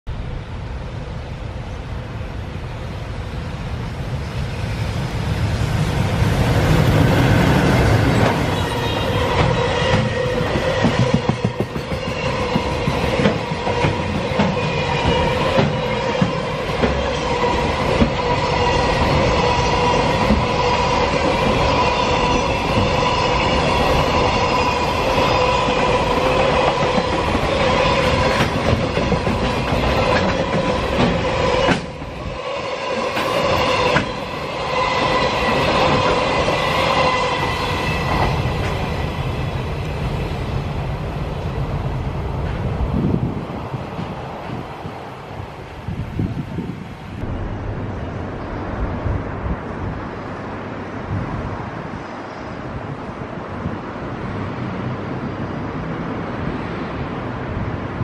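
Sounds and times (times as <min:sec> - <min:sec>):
freight train passing: 0:00.1 - 0:58.0
wheels clicking over rail joints: 0:25.1 - 0:32.2.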